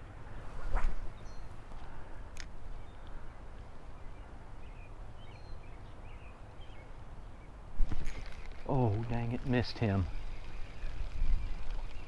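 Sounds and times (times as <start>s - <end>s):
fishing rod cast whoosh: 0.5s - 1.2s
bird chirps: 1.1s - 1.6s
wind noise on microphone: 7.8s - 12.0s.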